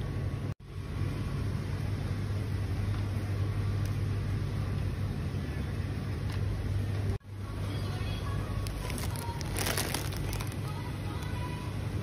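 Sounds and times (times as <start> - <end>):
shopping trolley wheels rumbling: 7.0 - 12.0.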